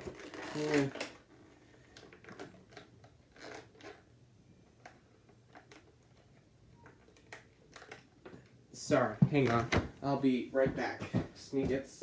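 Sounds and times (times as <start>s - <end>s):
plastic bag crinkling: 0.0s - 4.1s.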